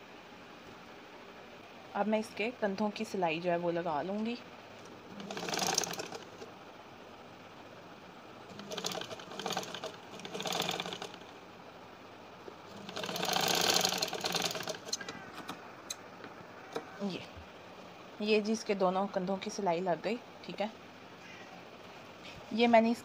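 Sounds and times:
sewing machine stitching: 0:05.1 - 0:06.5, 0:08.5 - 0:11.2, 0:12.7 - 0:15.0.

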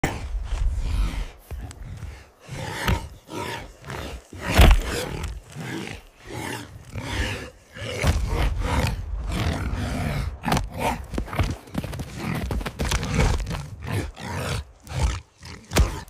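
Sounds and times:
boar growling and grunting: 0:00.0 - 0:16.0.

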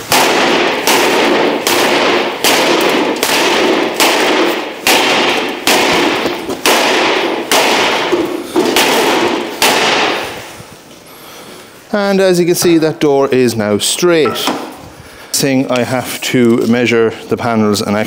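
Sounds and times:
sledgehammer striking steel: 0:00.0 - 0:10.4.

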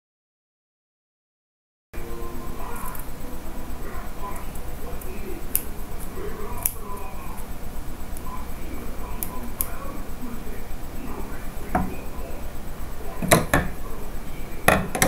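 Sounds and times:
steady background hiss: 0:02.0 - 0:15.0
sharp knocks: 0:13.2 - 0:13.8, 0:14.7 - 0:15.0.

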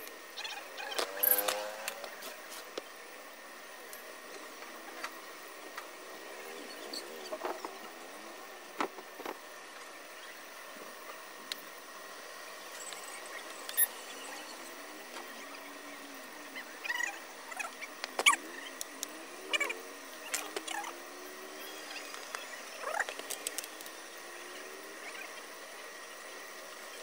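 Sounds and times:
steady hiss: 0:00.0 - 0:27.0.

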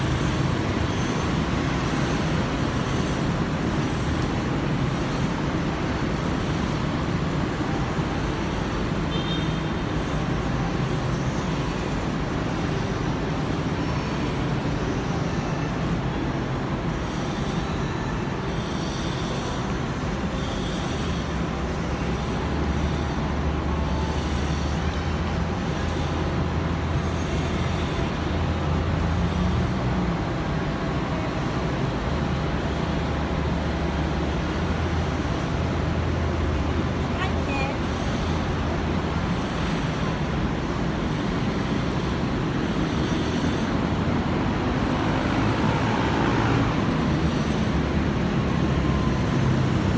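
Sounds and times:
road noise hum: 0:00.0 - 0:49.9
cars driving past: 0:19.2 - 0:49.9.

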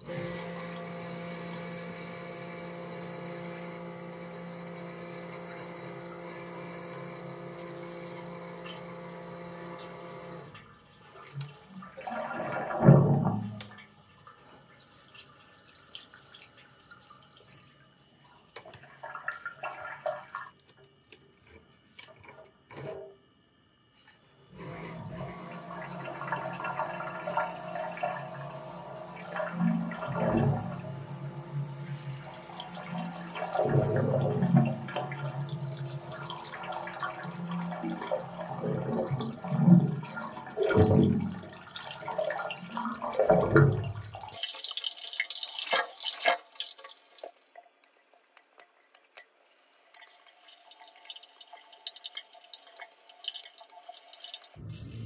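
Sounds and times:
water gurgling in a drain: 0:00.0 - 0:17.8, 0:18.4 - 0:20.6, 0:24.6 - 0:55.0
drain jetting machine hum: 0:00.0 - 0:20.8, 0:24.5 - 0:55.0
water trickling and dripping: 0:12.8 - 0:20.8, 0:32.0 - 0:54.9.

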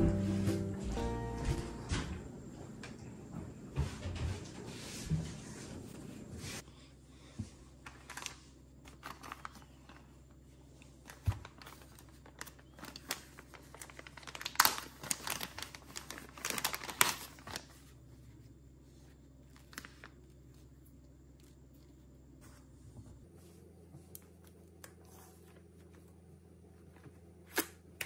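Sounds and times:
plastic bag crinkling: 0:07.8 - 0:10.3, 0:10.9 - 0:18.0, 0:19.5 - 0:20.2.

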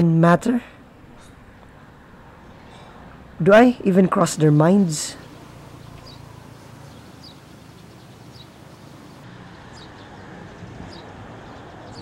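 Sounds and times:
distant traffic rumble: 0:00.0 - 0:12.0
bird chirping: 0:04.2 - 0:12.0.

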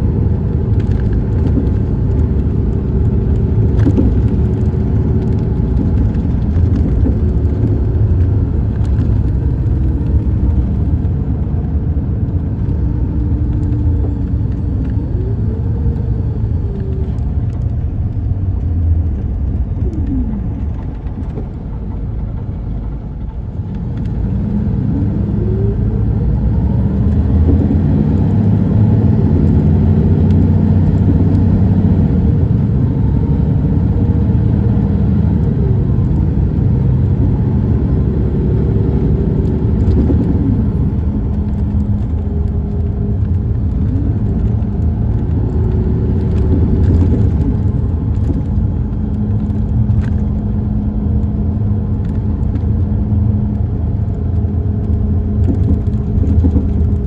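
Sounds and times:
diesel engine rumble: 0:00.0 - 0:57.0
road noise: 0:00.0 - 0:57.0.

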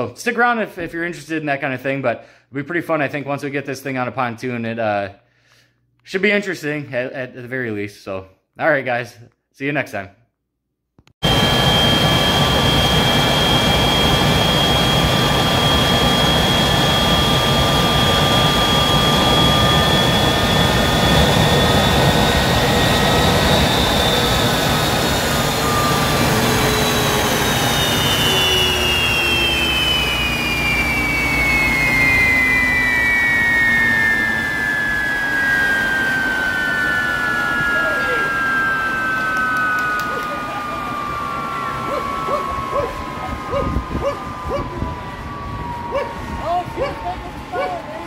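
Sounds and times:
turbojet engine running: 0:11.2 - 0:48.0.

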